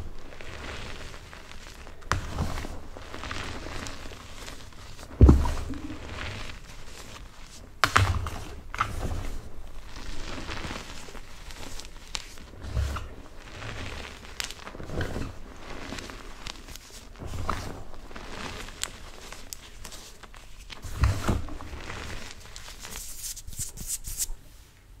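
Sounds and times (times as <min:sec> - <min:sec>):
hands crunching gym chalk: 0:18.3 - 0:24.4.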